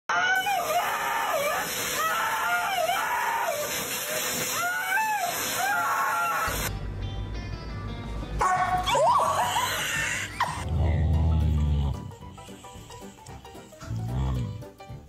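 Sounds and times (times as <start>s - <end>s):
pet dryer hiss: 0.2s - 6.7s, 12.3s - 13.6s.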